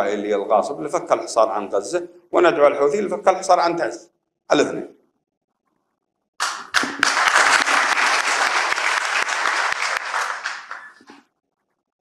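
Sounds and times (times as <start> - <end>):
audience applause: 6.4 - 11.2.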